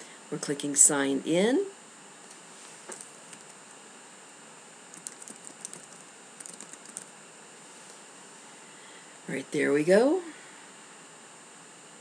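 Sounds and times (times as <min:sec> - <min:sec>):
faint keyboard typing: 0:03.0 - 0:03.6, 0:04.9 - 0:07.1.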